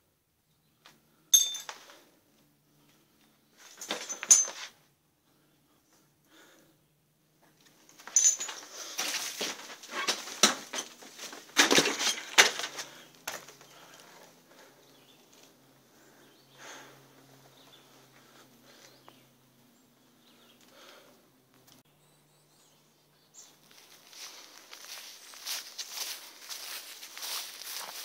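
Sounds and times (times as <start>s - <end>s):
footsteps through debris and brush: 8.0s - 13.9s, 23.4s - 28.0s.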